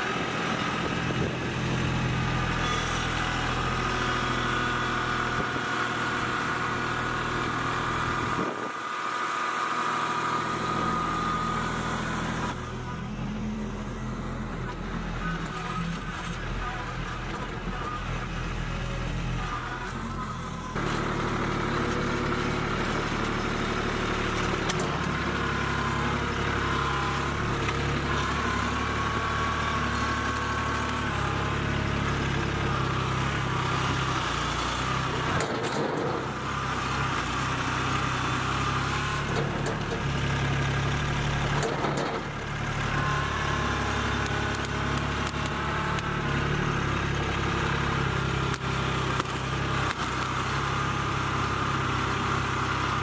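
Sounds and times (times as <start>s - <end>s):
front loader digging into soil: 0.0s - 53.0s
tractor diesel engine running: 0.0s - 53.0s.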